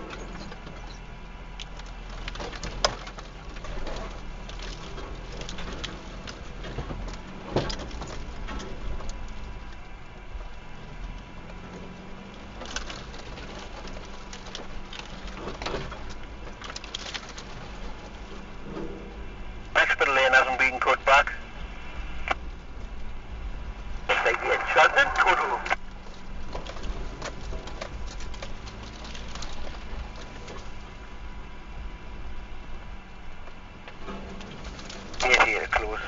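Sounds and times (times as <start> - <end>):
vehicle engine running low: 0.0 - 36.0.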